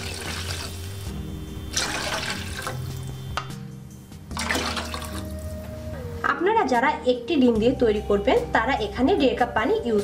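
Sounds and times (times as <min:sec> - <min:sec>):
water splashing in a steel pot: 0:00.0 - 0:03.3, 0:04.3 - 0:05.4
soft background music: 0:00.0 - 0:10.0.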